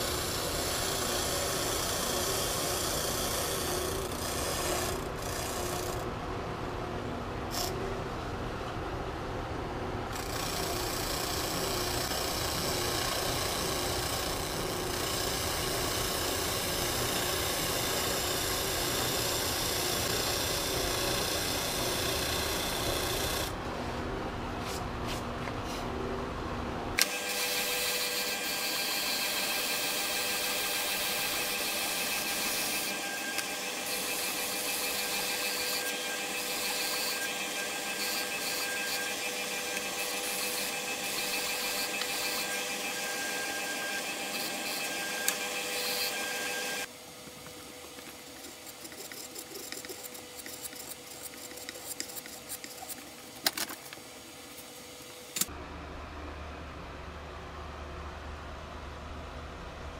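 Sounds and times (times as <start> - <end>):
spindle sander motor whining: 27.0 - 46.9
sanding sleeve grinding wood: 48.1 - 53.2.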